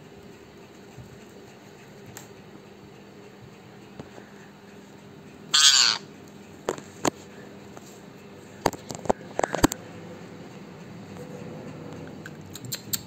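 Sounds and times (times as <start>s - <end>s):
parakeet harsh squawk: 5.5s - 6.1s.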